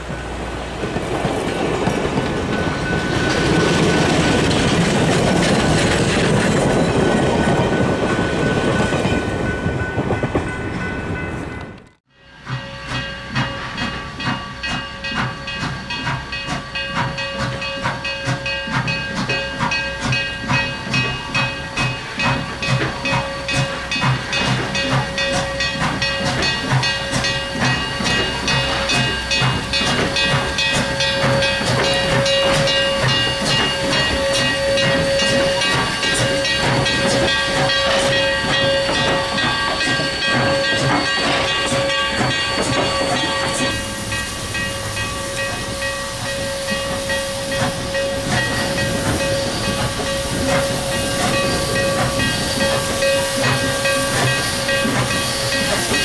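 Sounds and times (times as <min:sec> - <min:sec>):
steam locomotive chuffing: 0:00.0 - 0:10.7, 0:12.2 - 0:56.0
steam hiss: 0:12.3 - 0:56.0.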